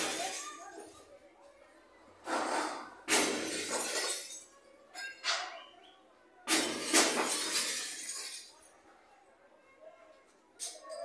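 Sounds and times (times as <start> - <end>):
glass shattering: 0.0 - 0.9, 3.1 - 5.5, 6.5 - 8.7.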